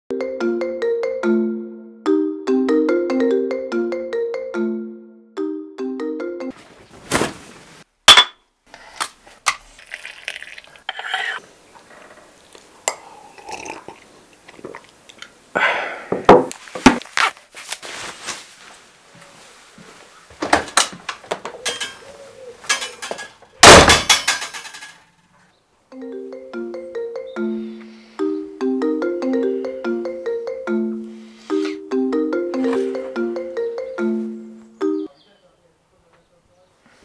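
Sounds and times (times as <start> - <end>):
crockery and cutlery clinking: 21.6 - 25.0.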